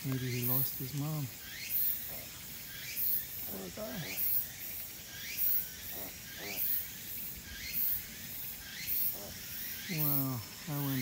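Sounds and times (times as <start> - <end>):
insect chirring: 0.0 - 11.0.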